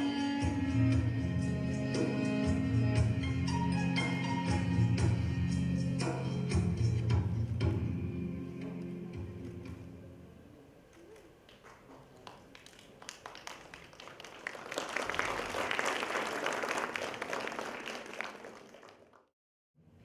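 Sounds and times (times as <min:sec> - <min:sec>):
audience applauding: 0:10.9 - 0:19.3.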